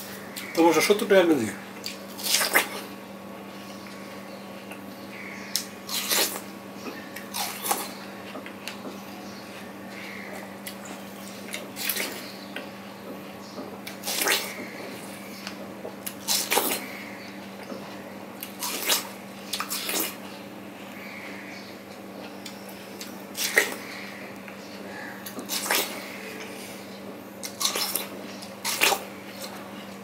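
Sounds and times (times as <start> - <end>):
steady low hum: 0.0 - 30.0
eating watermelon: 1.6 - 3.0, 5.5 - 8.8, 9.4 - 12.7, 13.8 - 20.3, 21.9 - 24.2, 24.9 - 26.8, 27.4 - 30.0.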